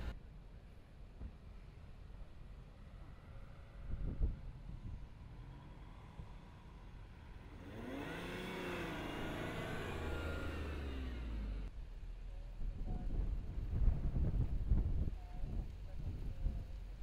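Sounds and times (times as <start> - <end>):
car engine revving: 7.4 - 11.7.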